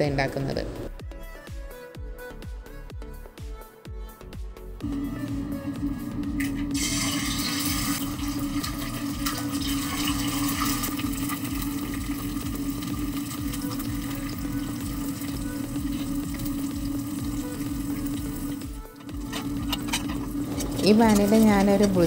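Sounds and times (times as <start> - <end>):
constant hum: 4.8 - 22.0
eggs sizzling in a pan: 4.9 - 22.0.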